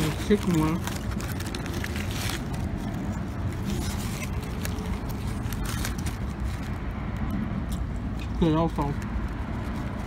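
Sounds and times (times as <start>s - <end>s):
foil wrapper crinkling: 0.0s - 7.3s.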